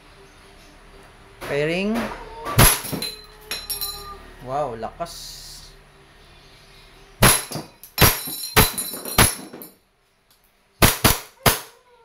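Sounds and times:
pistol shots cracking: 2.6 - 3.0, 7.2 - 9.5, 10.8 - 11.7
pellets ringing on steel target: 2.6 - 4.0, 7.2 - 9.7.

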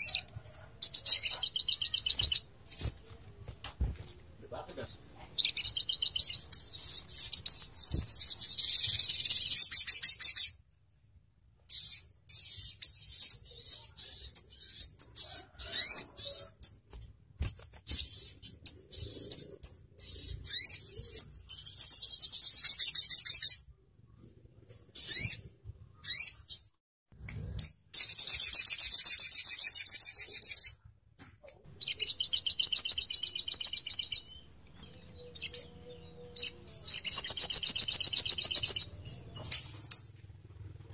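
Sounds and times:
bird high-pitched trills: 0.0 - 2.9, 4.1 - 10.6, 31.8 - 40.2
bird sharp chips: 0.0 - 10.5, 36.4 - 40.1.

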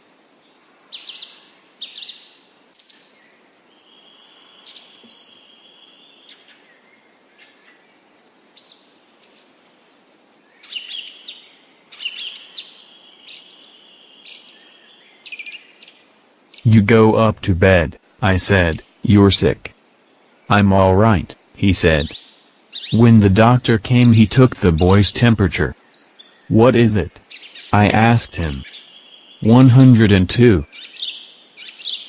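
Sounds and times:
faint steady hiss: 0.0 - 32.0
birds chirping: 12.0 - 19.7, 20.5 - 32.0.

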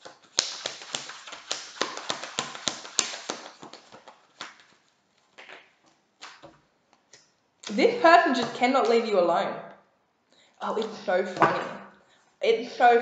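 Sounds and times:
cards being shuffled: 0.0 - 7.2.

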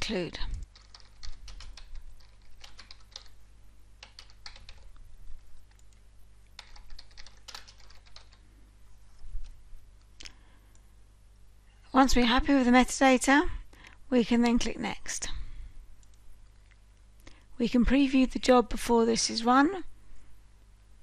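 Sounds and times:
low steady hum: 0.0 - 21.0
keyboard typing: 0.6 - 3.4, 4.0 - 6.0, 6.6 - 8.4.

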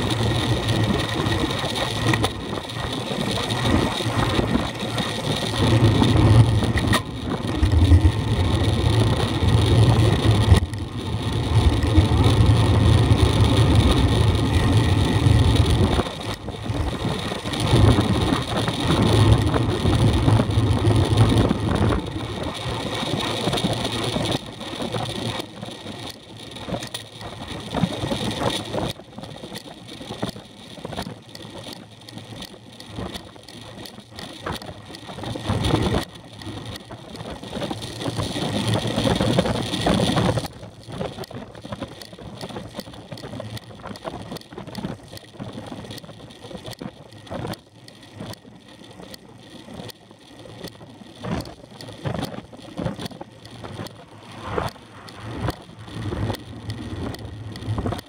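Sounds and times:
wind rushing over microphone: 0.0 - 24.3, 51.2 - 58.0
bicycle tyre noise: 0.0 - 58.0
bike rattling: 0.0 - 58.0.

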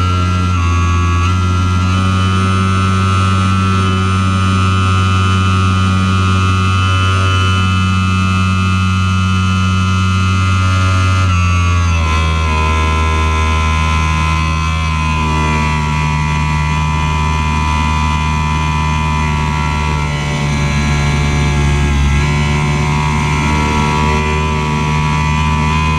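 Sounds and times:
steady high tone: 12.0 - 25.9.

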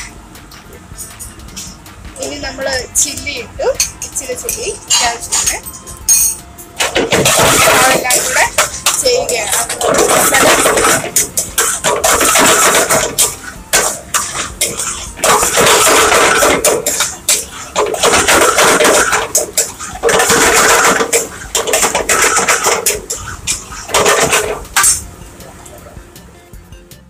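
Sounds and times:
metal ladle scraping frying pan: 6.8 - 25.1.

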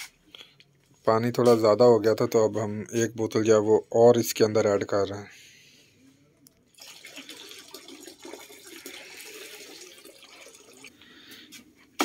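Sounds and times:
syrup pouring into liquid: 6.8 - 10.9.

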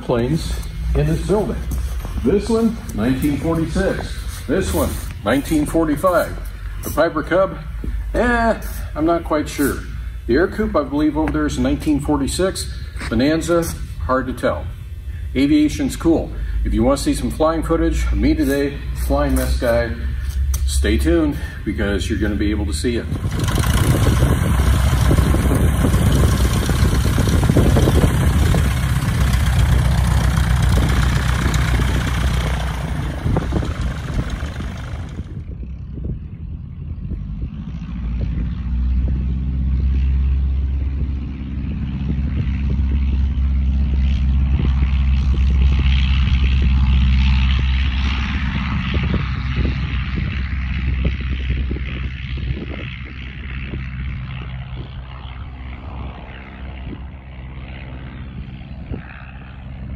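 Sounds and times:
propeller airplane engine running: 0.0 - 59.9.

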